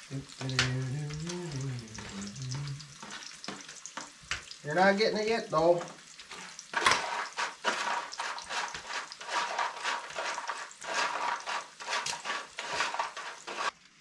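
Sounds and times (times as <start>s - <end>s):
bacon and eggs sizzling in pan: 0.0s - 14.0s.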